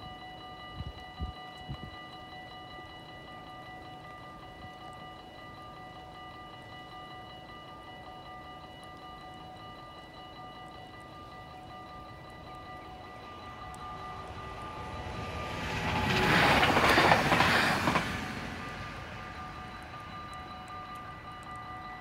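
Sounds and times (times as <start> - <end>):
crossing warning bell ringing: 0.0 - 22.0
passenger train passing: 12.0 - 22.0.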